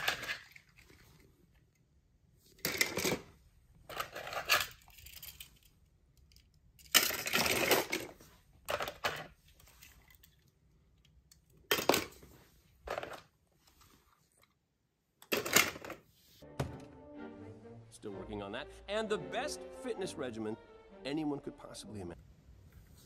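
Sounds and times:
toy cars clattering and clinking: 0.0s - 1.7s, 2.5s - 12.2s, 12.9s - 13.3s, 15.2s - 16.0s.

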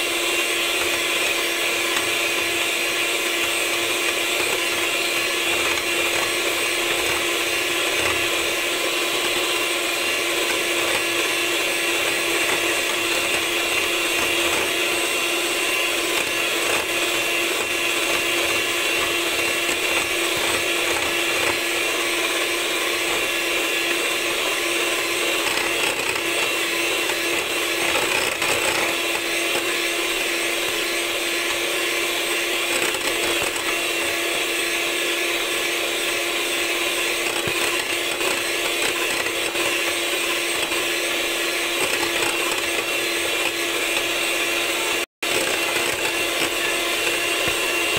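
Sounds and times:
electric mixer running: 0.0s - 47.9s.

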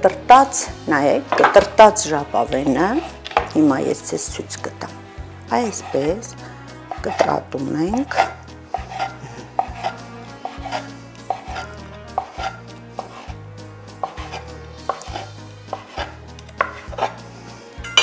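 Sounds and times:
knife chopping on wooden board: 6.9s - 13.3s, 14.0s - 17.2s.

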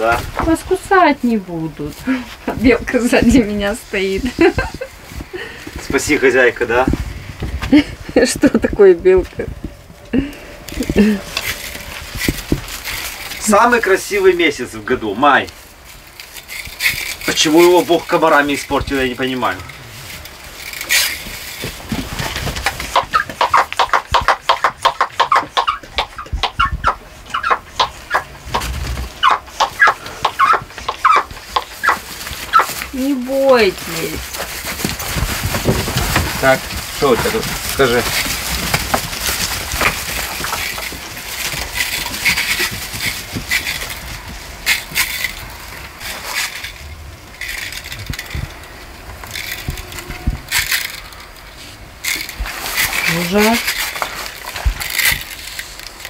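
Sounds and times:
rustling in straw: 0.0s - 8.5s, 9.3s - 24.6s, 26.4s - 56.0s
barn animals calling: 22.6s - 35.0s, 47.5s - 51.5s.

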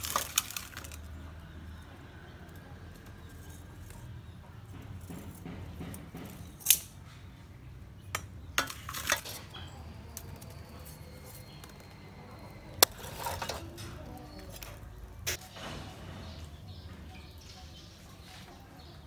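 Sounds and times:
charcoal lumps knocking: 0.0s - 1.3s, 8.1s - 16.4s.

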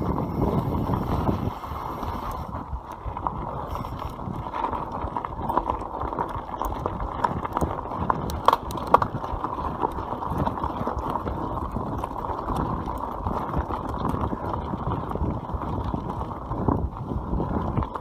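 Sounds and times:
bike tyres crunching on gravel: 0.0s - 18.0s.

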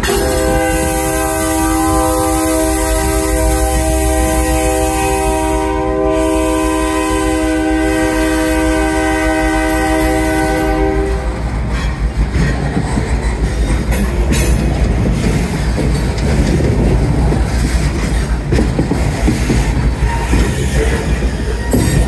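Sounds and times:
locomotive air horn blast: 0.0s - 11.5s
wheels clattering over rail joints: 10.7s - 22.0s.

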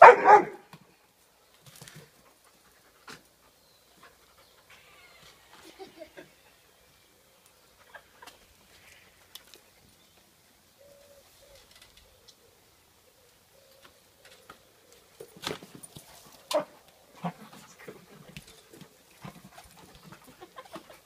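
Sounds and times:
dog barking: 0.0s - 0.7s.

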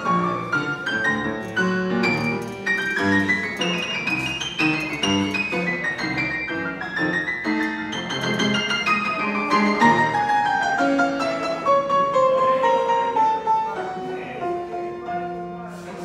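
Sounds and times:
grand piano playing: 0.0s - 16.0s.

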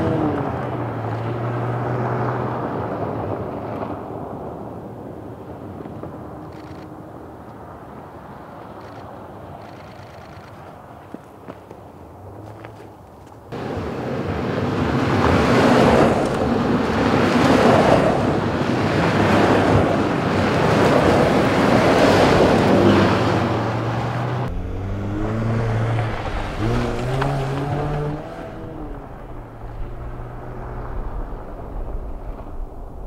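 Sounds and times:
vehicles driving by on dirt: 0.0s - 33.0s
engine accelerating through gears: 22.0s - 31.9s.

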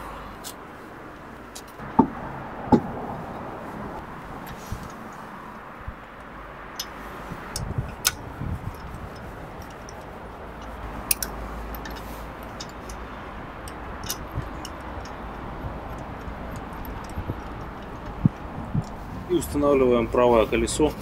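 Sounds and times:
sharp metallic clicks: 6.1s - 19.0s
ratchet wrench clicking: 6.8s - 19.0s.

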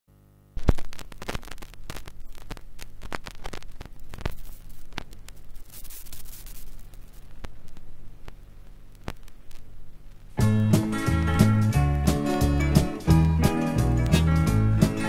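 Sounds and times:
low steady hum: 0.1s - 11.9s
vinyl crackles and pops: 0.1s - 15.0s
vinyl hiss: 0.1s - 15.0s.

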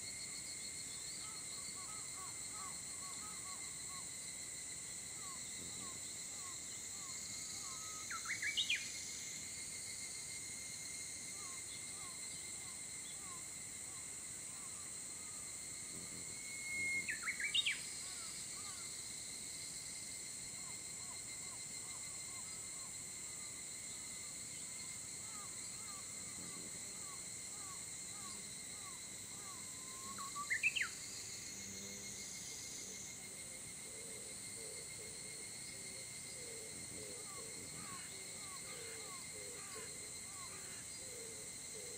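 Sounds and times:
high insect drone: 0.0s - 41.9s
bird singing: 7.6s - 9.0s, 16.6s - 18.3s, 30.1s - 31.0s.

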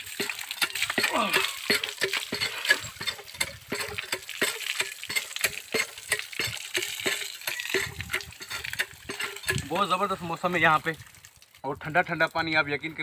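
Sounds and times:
water splashing: 0.0s - 12.3s.

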